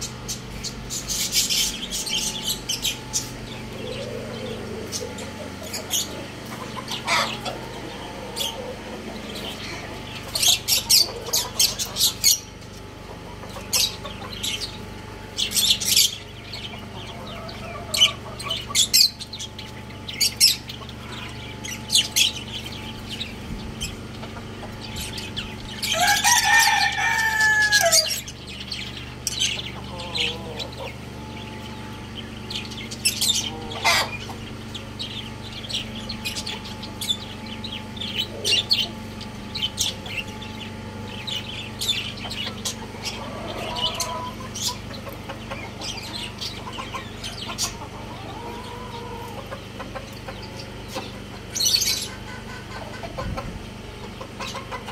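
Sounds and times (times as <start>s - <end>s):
small birds chirping: 0.0s - 54.9s
steady low hum: 0.0s - 54.9s
rooster crowing: 25.8s - 28.3s, 48.0s - 49.5s.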